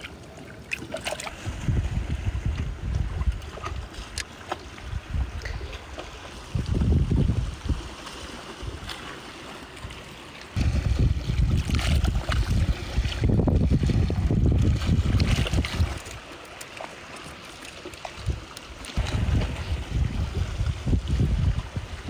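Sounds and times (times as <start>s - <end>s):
faint water: 0.0s - 22.0s
wind buffeting microphone: 1.3s - 4.2s, 4.8s - 8.0s, 10.6s - 16.1s, 19.0s - 22.0s.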